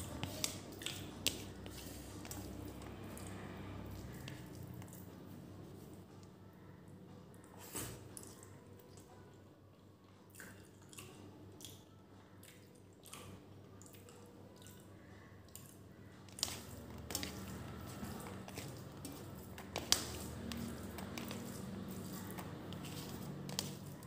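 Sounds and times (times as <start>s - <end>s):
fingers squelching through rice: 16.3s - 24.0s.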